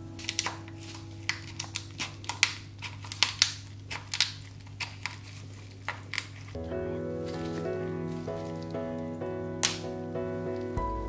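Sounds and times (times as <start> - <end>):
scissors cracking crab shell: 0.2 - 6.6, 9.6 - 9.8.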